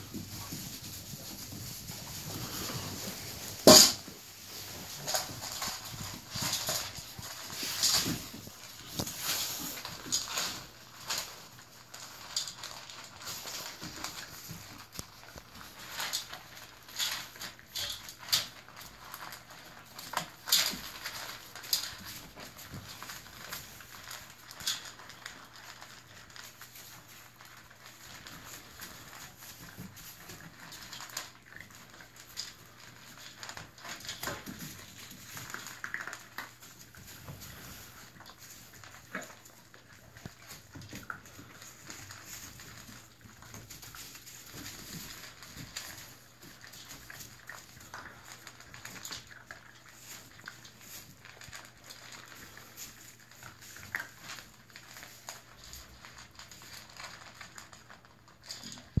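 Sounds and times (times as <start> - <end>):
wood shavings rustling: 0.0 - 16.9
puppies chewing from metal pan: 0.0 - 59.0.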